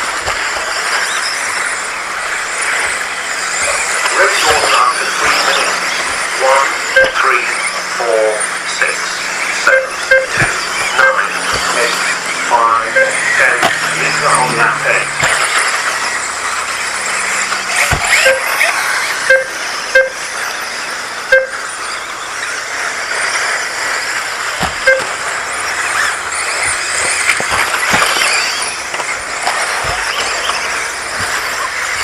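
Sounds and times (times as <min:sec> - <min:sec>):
rc car motors whirring: 0:00.0 - 0:32.0
short beeps: 0:06.9 - 0:07.3, 0:09.7 - 0:15.2, 0:18.1 - 0:20.3, 0:21.3 - 0:21.7, 0:24.8 - 0:25.2.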